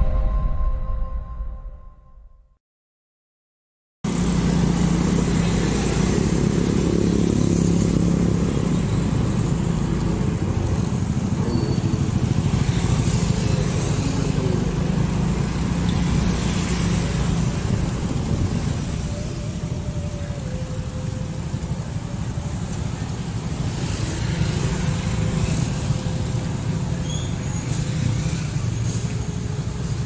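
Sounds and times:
street traffic: 0:04.0 - 0:30.0.

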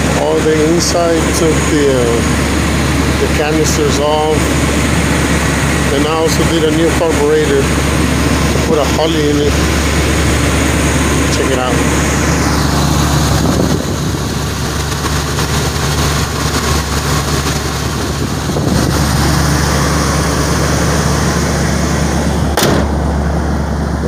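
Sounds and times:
engine idling: 0:00.0 - 0:24.0
hood slamming shut: 0:20.3 - 0:23.2.

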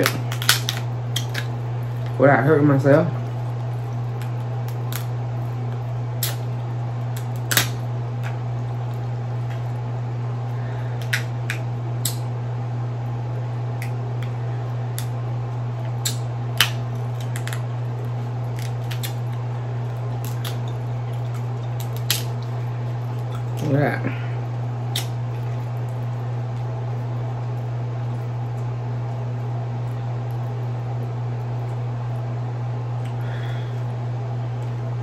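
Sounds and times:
crab shells cracking: 0:00.0 - 0:02.2, 0:04.0 - 0:08.4, 0:11.0 - 0:12.3, 0:15.9 - 0:17.6, 0:18.4 - 0:23.7, 0:24.9 - 0:25.5
steady low hum: 0:00.0 - 0:35.0.

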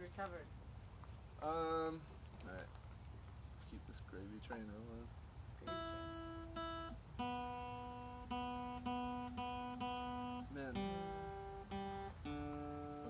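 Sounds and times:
acoustic guitar chords ringing: 0:05.6 - 0:13.0.

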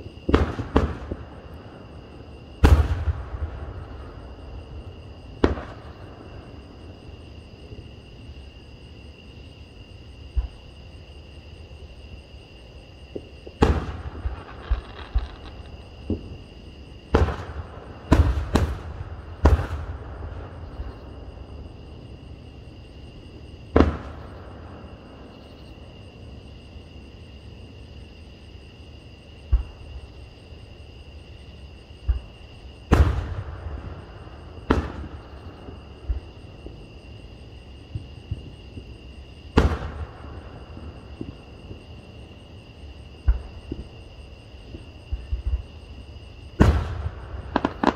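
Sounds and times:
distant firework booms: 0:00.0 - 0:01.8, 0:02.6 - 0:06.7, 0:13.1 - 0:16.4, 0:17.0 - 0:21.2, 0:23.7 - 0:24.9, 0:32.9 - 0:36.8, 0:39.5 - 0:41.9, 0:46.6 - 0:47.9.

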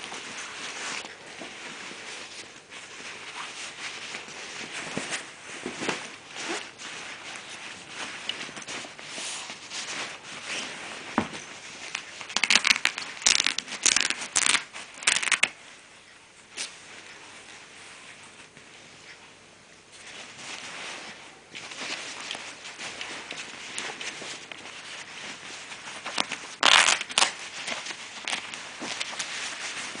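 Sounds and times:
nylon fabric rustling and crinkling: 0:00.0 - 0:30.0.

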